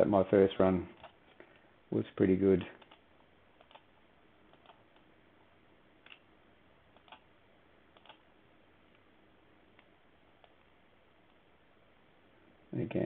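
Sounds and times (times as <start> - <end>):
faint computer mouse clicks: 3.6 - 3.9, 7.0 - 7.2, 7.9 - 8.2.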